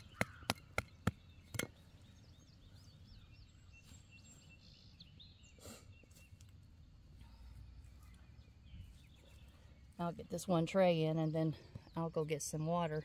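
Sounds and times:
trowel striking dry soil: 0.0s - 1.8s
faint outdoor background: 0.0s - 13.0s.

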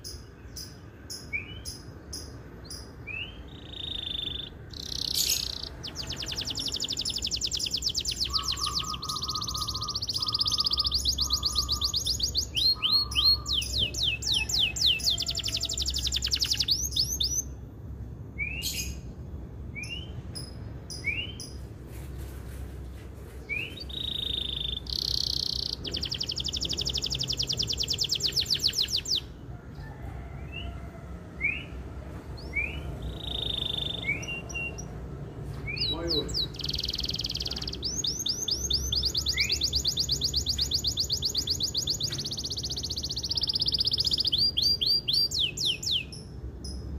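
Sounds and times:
canary trilling: 0.0s - 17.6s, 23.6s - 29.4s, 32.4s - 35.0s, 35.7s - 46.8s
canary short rising chirps: 3.2s - 17.5s, 23.5s - 29.3s, 32.4s - 34.9s, 35.7s - 46.1s.

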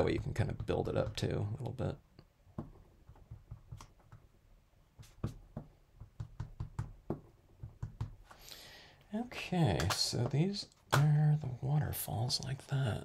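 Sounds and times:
pencil tapping on card: 2.5s - 4.3s, 4.9s - 8.3s.

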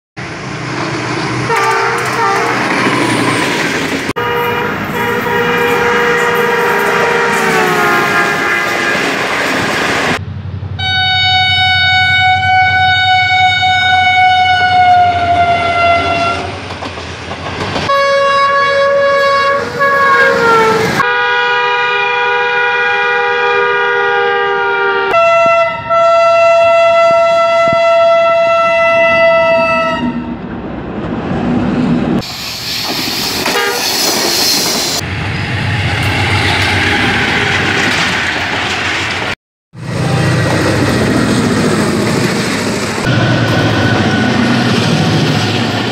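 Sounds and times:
train rumbling and clattering by: 0.2s - 10.8s, 14.0s - 21.0s, 30.2s - 45.9s
locomotive air horn blasts: 1.5s - 2.7s, 4.2s - 9.2s, 10.8s - 16.5s, 17.9s - 30.3s, 33.4s - 33.9s.

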